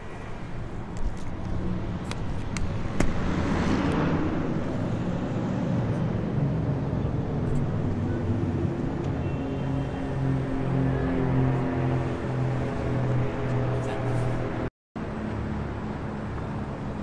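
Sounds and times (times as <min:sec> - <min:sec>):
street traffic: 0:00.0 - 0:17.0
vehicle passing by: 0:03.1 - 0:09.0, 0:09.6 - 0:14.7.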